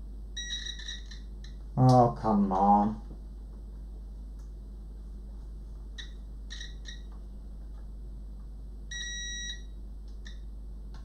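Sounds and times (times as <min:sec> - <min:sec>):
multimeter beeping: 0:00.4 - 0:01.3, 0:06.0 - 0:07.1, 0:08.9 - 0:09.7.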